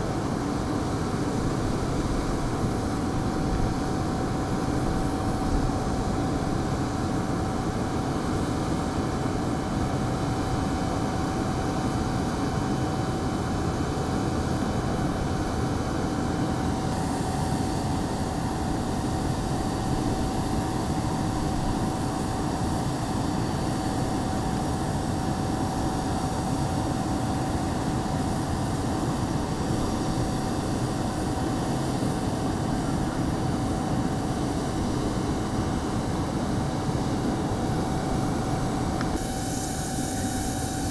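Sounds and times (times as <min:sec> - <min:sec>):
jet airliner engine whine: 0:00.0 - 0:40.9.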